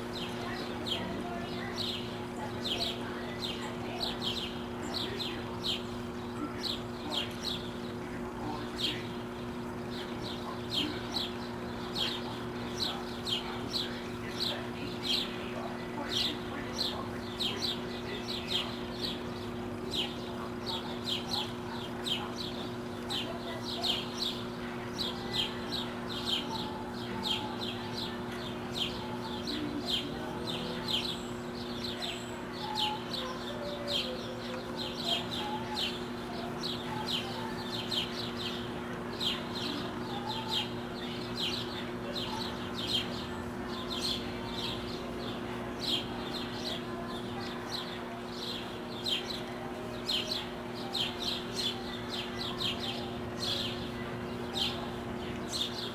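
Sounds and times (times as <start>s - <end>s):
ducklings peeping: 0.0s - 55.9s
steady low hum: 0.0s - 55.9s.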